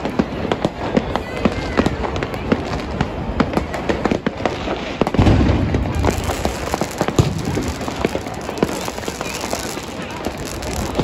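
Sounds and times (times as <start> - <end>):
fireworks cracking and popping: 0.0 - 11.0
loud firework bang: 3.4 - 11.0.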